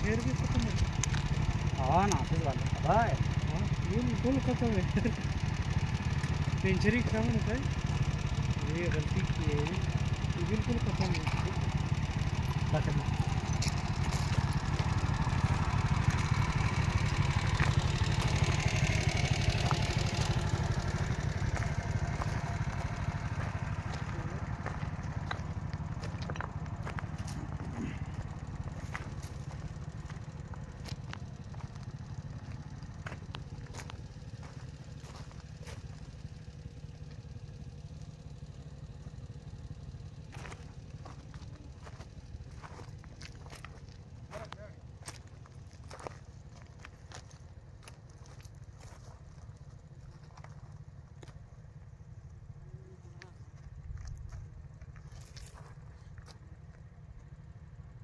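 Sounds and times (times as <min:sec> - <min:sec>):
steady low rumble: 0:00.0 - 0:58.0
light ticks: 0:00.6 - 0:01.4
footsteps crunching on gravel: 0:12.4 - 0:36.3, 0:40.2 - 0:51.6, 0:53.2 - 0:56.9.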